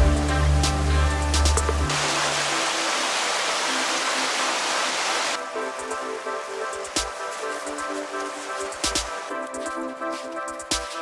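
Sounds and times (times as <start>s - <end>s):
background music with bass and drums: 0.0s - 2.6s, 5.4s - 11.0s
rushing stream: 0.0s - 11.0s.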